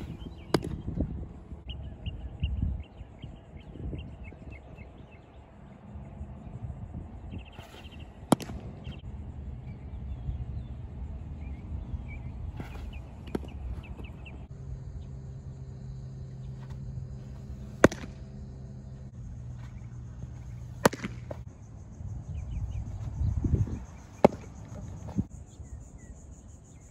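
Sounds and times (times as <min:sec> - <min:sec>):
baseball smacking into mitt: 0:00.0 - 0:01.0, 0:07.6 - 0:09.0, 0:12.6 - 0:14.1, 0:17.4 - 0:18.4, 0:19.6 - 0:21.4, 0:24.1 - 0:25.2
low outdoor hum: 0:00.0 - 0:26.9.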